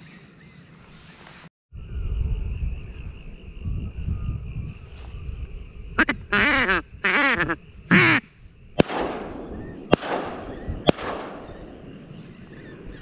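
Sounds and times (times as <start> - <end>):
duck quacking: 6.0 - 8.2
shotgun shots with echo: 8.8 - 12.0.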